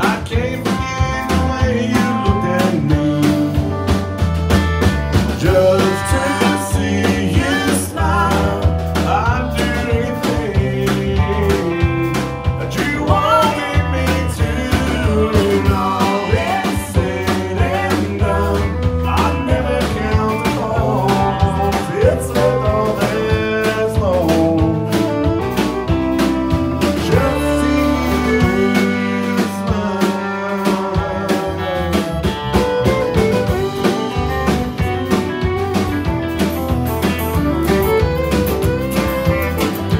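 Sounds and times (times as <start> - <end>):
man singing: 0.0 - 3.9, 5.3 - 32.3
bass and beat: 0.0 - 39.9
strummed acoustic guitar: 0.0 - 39.9
bowed fiddle with sliding notes: 29.8 - 39.9.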